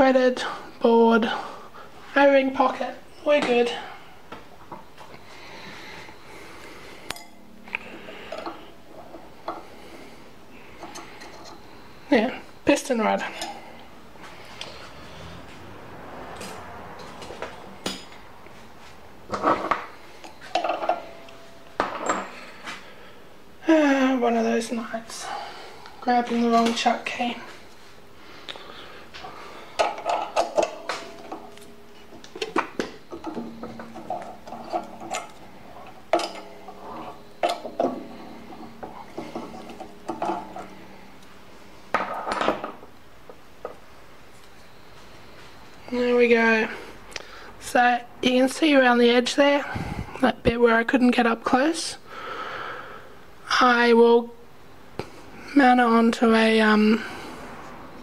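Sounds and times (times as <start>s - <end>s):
metal clinks and knocks: 19.3s - 22.6s, 29.2s - 42.9s.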